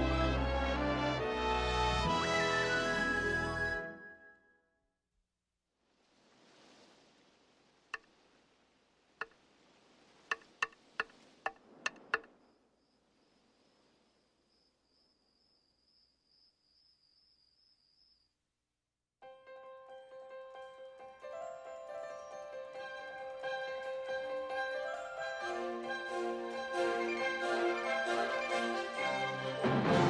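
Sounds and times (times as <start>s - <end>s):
sharp knocks: 10.3s - 12.3s
cricket chirping trill: 11.8s - 18.5s.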